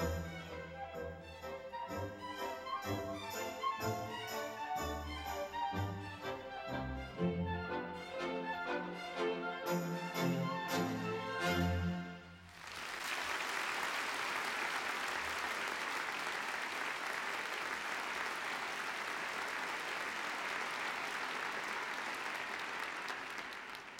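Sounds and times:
orchestra playing chords: 0.0 - 12.5
audience applauding: 12.4 - 23.9.

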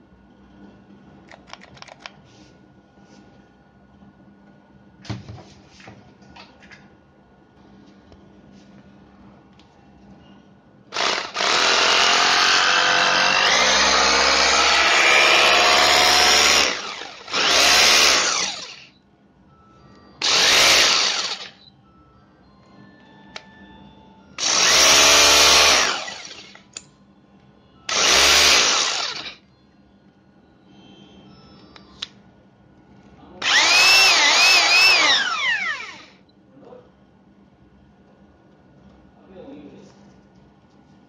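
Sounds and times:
rotary hammer motor running: 10.9 - 18.9, 20.2 - 21.6, 24.4 - 26.6, 27.9 - 29.4, 33.4 - 36.2.

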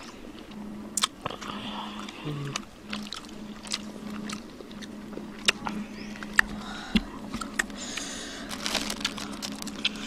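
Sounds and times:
faint steady hum: 0.0 - 10.0
plastic bag crackling: 7.7 - 10.0.

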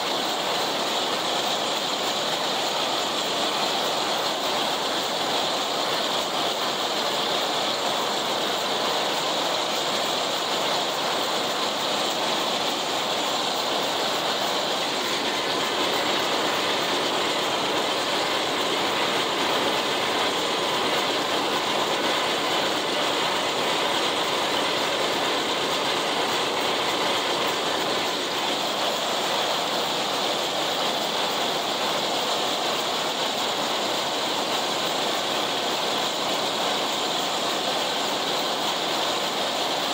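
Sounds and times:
mower mechanical clatter: 0.0 - 39.9
tractor engine under load: 12.8 - 28.6.

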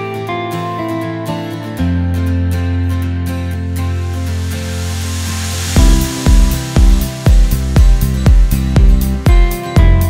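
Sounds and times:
background music with held notes: 0.0 - 10.0
deep musical note: 3.8 - 9.2.

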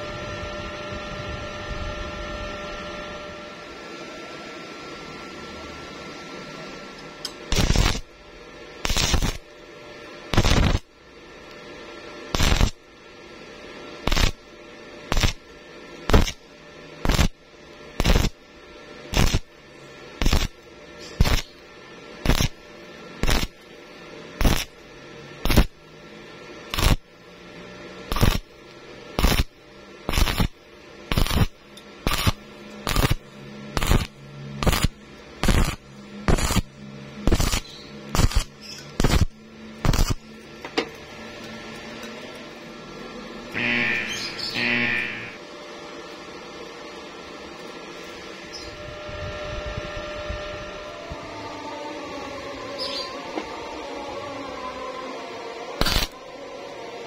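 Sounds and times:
welding arc bursts: 7.4 - 8.2, 8.8 - 9.5, 10.3 - 11.0, 12.3 - 12.9, 14.0 - 21.6, 22.2 - 23.6, 24.4 - 24.8, 25.4 - 25.8, 26.7 - 27.1, 28.0 - 40.3, 43.5 - 45.4, 55.8 - 56.2.

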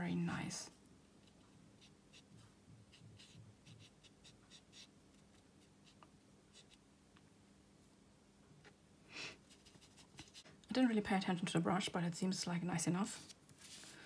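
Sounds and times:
faint steady hum: 0.0 - 14.0
brush scratching on paper: 1.2 - 6.8.

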